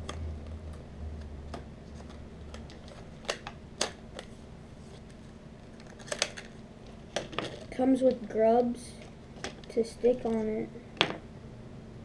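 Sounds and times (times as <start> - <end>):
sharp plastic snaps: 2.5 - 4.3.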